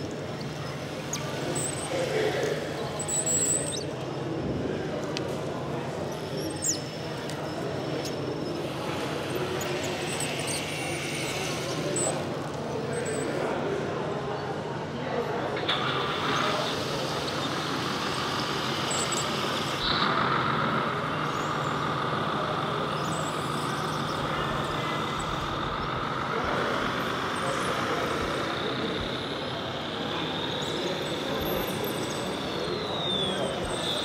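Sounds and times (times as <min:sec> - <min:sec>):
electric drive whine: 0:15.6 - 0:34.0
steady low hum: 0:15.8 - 0:34.0.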